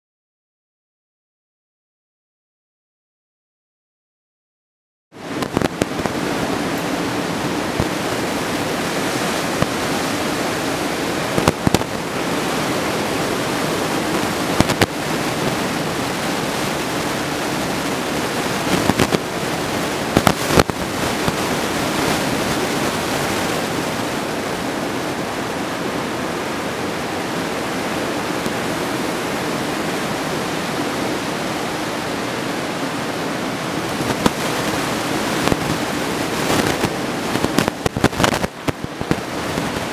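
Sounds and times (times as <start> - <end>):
microphone crackles: 5.2 - 6.9, 11.2 - 12.0, 14.0 - 15.7, 18.6 - 19.3, 20.1 - 23.7, 33.8 - 39.9
surf breaking on a reef: 5.2 - 39.9.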